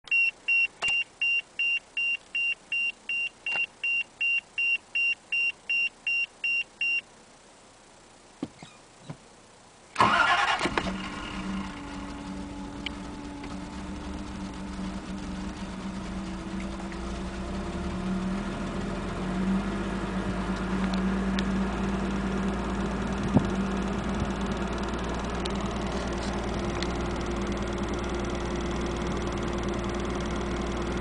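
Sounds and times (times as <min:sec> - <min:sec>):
dashboard warning chime beeping: 0:00.1 - 0:07.0
car engine idling: 0:07.1 - 0:31.0
car engine cranking and starting: 0:08.6 - 0:31.0.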